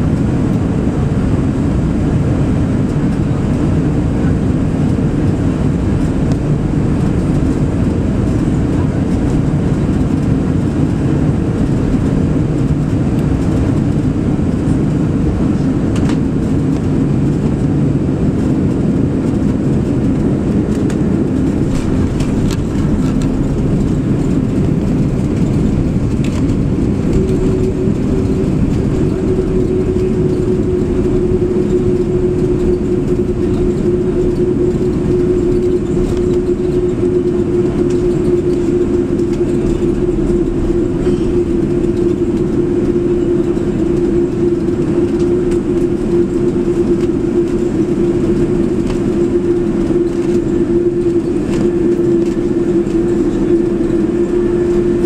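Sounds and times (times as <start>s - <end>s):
aircraft engines and runway rumble: 0.0s - 55.0s
hum falling in pitch: 20.0s - 55.0s.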